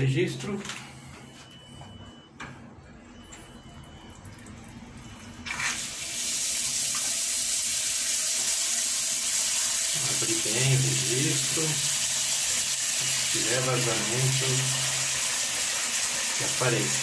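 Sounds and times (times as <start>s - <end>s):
water splashing into washbasin: 3.8s - 17.0s.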